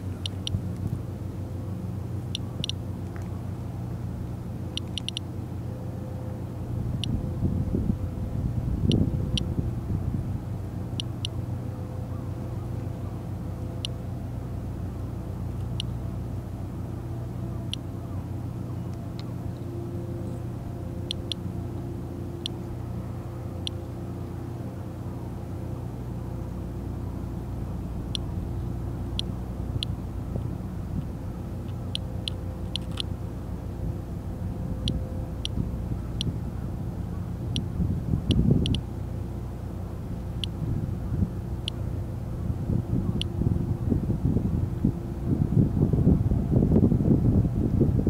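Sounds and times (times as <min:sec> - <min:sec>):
low engine hum: 0:00.0 - 0:48.0
geiger counter clicking: 0:00.2 - 0:00.6, 0:02.3 - 0:03.2, 0:04.7 - 0:05.3, 0:11.0 - 0:11.4, 0:15.6 - 0:15.9, 0:21.0 - 0:21.4, 0:31.6 - 0:33.1, 0:38.3 - 0:38.8.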